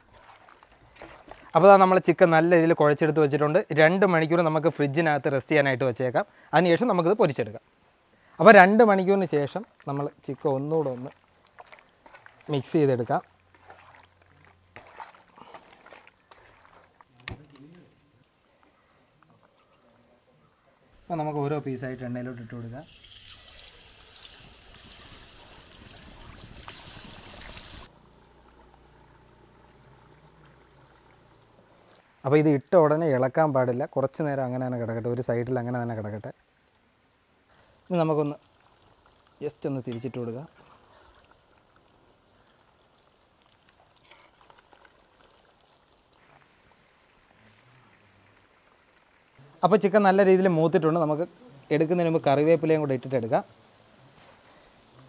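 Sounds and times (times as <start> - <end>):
chicken deep-frying in oil: 21.7 - 31.5, 37.5 - 51.2
chicken sizzling in hot oil: 22.8 - 28.0, 37.6 - 41.6.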